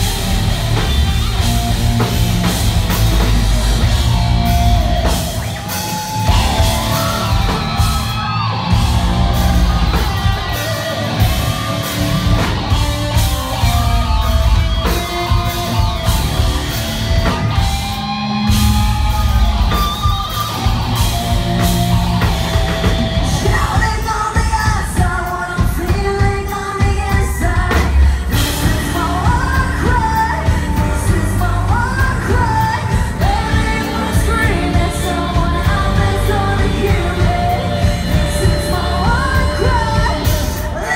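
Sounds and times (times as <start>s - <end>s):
bass guitar: 0.0s - 40.9s
electric guitars: 0.0s - 40.9s
pounding drum kit: 0.0s - 40.9s
woman singing lead vocal: 23.2s - 40.9s.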